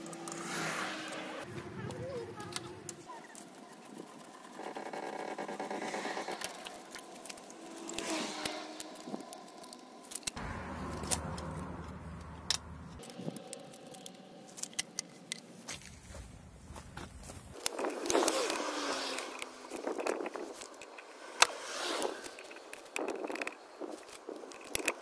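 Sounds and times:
metal jack clicking and clinking: 0:06.4 - 0:15.5, 0:17.6 - 0:25.0.

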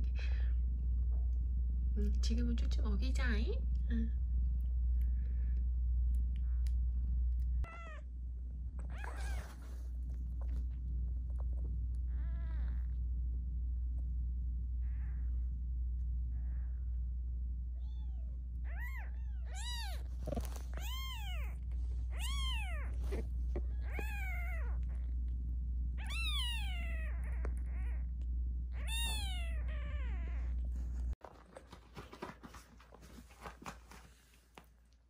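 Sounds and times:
steady low hum: 0:00.0 - 0:35.0
kitten mewing: 0:07.7 - 0:08.0, 0:18.7 - 0:25.0, 0:26.0 - 0:28.1, 0:28.7 - 0:30.5.

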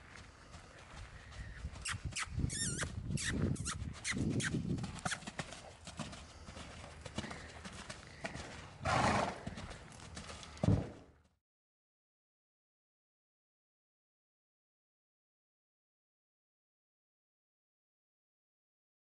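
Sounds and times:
horse hooves on sand: 0:00.0 - 0:11.4.

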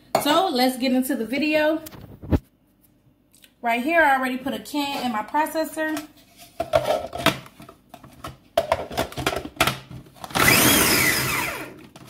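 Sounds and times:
food processor motor whine: 0:10.2 - 0:12.0.

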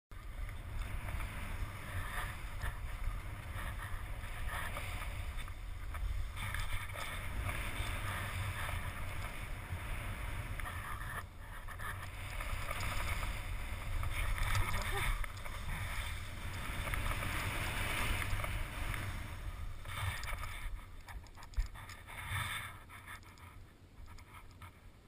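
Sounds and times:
skis hissing through snow: 0:00.6 - 0:20.9.

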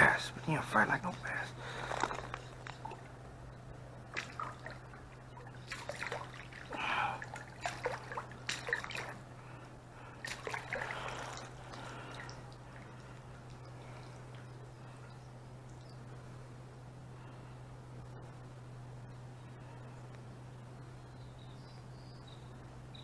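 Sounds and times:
shallow water splashing and dripping: 0:04.0 - 0:09.4, 0:10.0 - 0:14.6.

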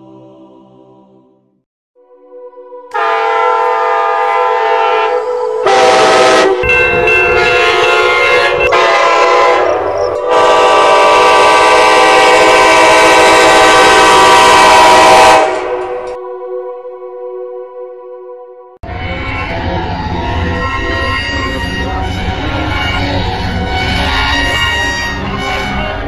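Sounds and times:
train horn chord blasts: 0:02.4 - 0:16.3.

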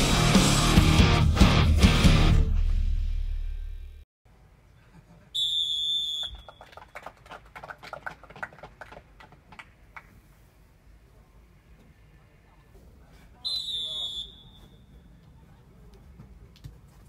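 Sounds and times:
referee's whistle blowing: 0:05.4 - 0:06.8, 0:13.4 - 0:15.0
scattered handclapping: 0:06.2 - 0:10.1.

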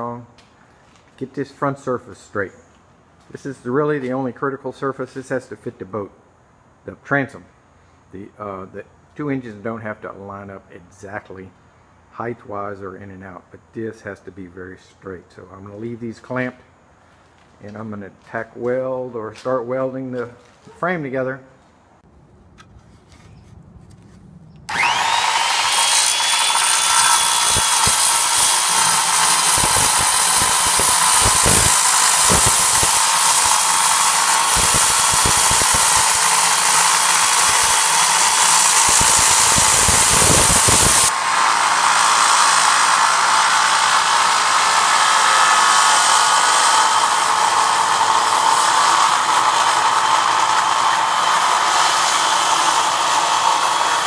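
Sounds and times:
circular saw cutting metal: 0:24.7 - 0:54.0.

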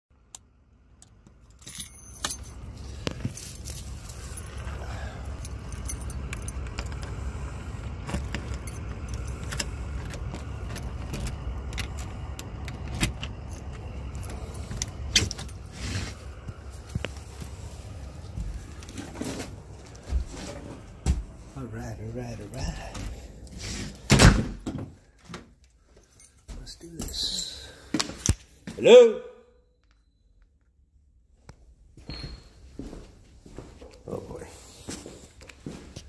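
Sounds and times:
steady low rumble: 0:00.3 - 0:24.2
keys jangling: 0:01.0 - 0:17.0, 0:22.4 - 0:24.1, 0:25.9 - 0:27.8
door opening: 0:05.5 - 0:16.3.

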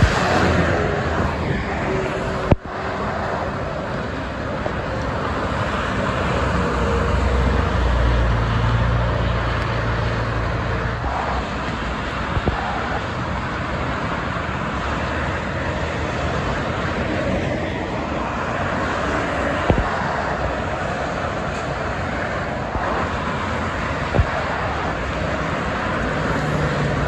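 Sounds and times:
deep rumble: 0:00.0 - 0:03.8
expressway traffic: 0:00.0 - 0:27.0.

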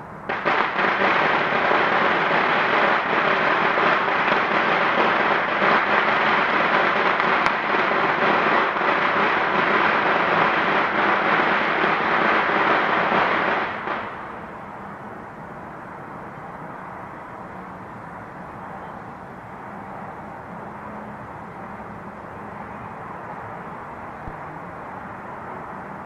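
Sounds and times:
fireworks crackling: 0:00.0 - 0:15.2.

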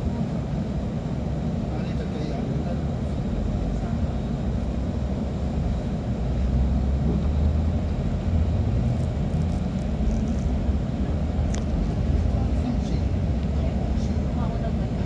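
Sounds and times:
bus engine and tyre rumble: 0:00.0 - 0:15.0.

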